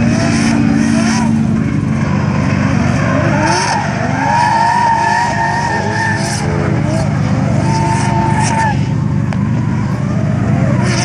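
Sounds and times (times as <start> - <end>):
car engine revving: 0.0 - 11.0
tyres squealing: 2.8 - 11.0.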